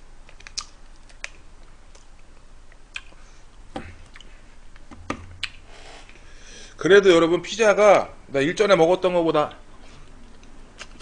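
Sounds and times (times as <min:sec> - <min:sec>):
quiet chewing and mouth sounds: 0:00.2 - 0:06.3, 0:09.8 - 0:11.0.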